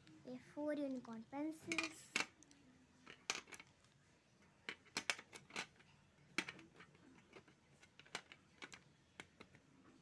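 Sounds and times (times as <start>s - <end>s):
pencils clicking against tin box: 1.6s - 3.7s, 4.6s - 9.6s.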